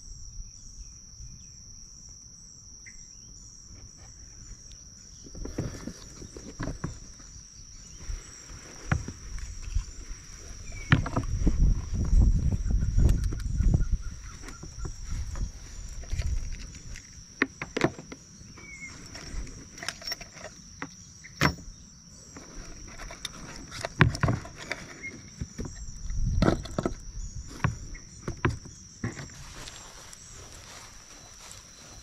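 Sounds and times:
high-pitched insect drone: 0.0s - 32.0s
wind rumble on microphone: 5.2s - 17.4s, 22.5s - 32.0s
footsteps on hiking trail: 7.9s - 17.4s, 29.0s - 32.0s.

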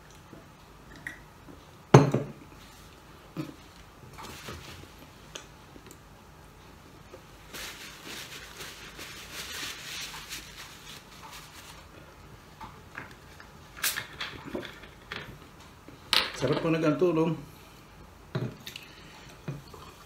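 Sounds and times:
paper napkin rustling: 4.1s - 5.0s, 7.4s - 12.0s.

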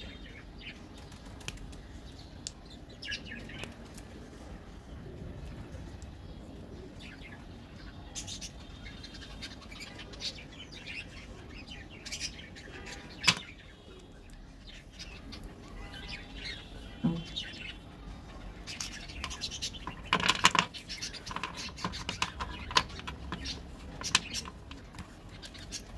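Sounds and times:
chocolate pieces clicking and tapping: 19.2s - 25.2s.

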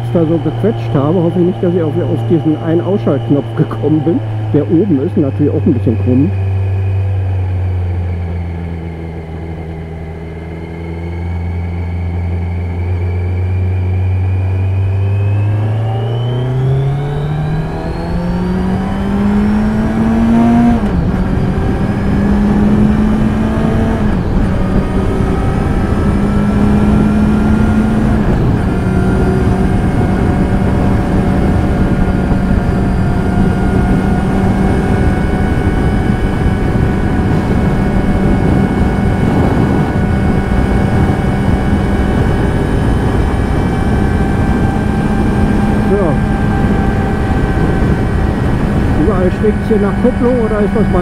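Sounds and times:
motorcycle engine: 0.0s - 51.0s
wind and road noise: 0.0s - 51.0s.

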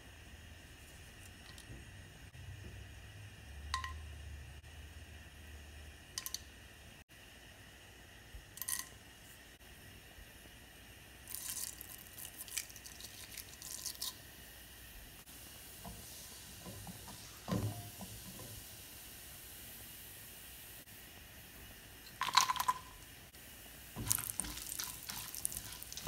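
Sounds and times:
spices sizzling in hot oil: 0.0s - 26.0s
crackling and spluttering oil: 24.0s - 26.0s.

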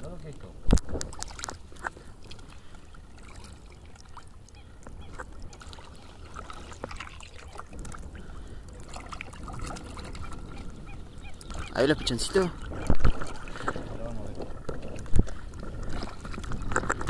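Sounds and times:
paddle moving through water: 0.3s - 17.0s
bird calls: 3.7s - 5.6s, 10.0s - 13.0s.

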